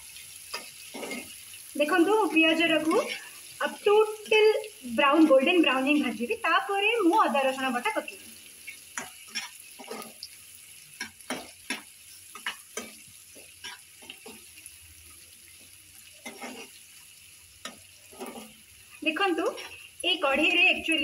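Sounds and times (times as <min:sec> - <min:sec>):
onions sizzling in oil: 0:00.0 - 0:21.0
metal spatula scraping a pan: 0:00.1 - 0:03.6, 0:08.6 - 0:14.6, 0:15.5 - 0:19.9.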